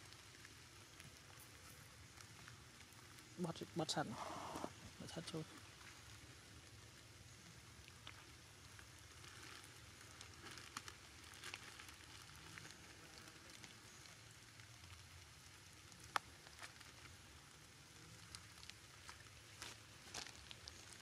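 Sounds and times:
plastic sheet crinkling: 9.1 - 17.4, 18.2 - 21.0.

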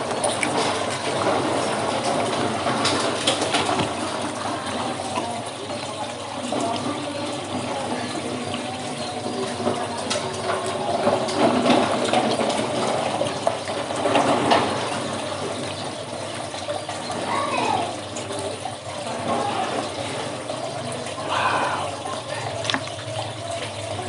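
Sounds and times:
wet chewing and slurping: 21.2 - 23.2.

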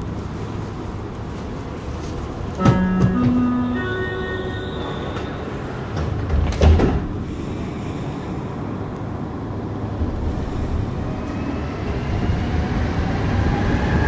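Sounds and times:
sliding doors thudding shut: 2.6 - 3.8, 5.1 - 7.5
three-note door chime: 2.6 - 6.3.

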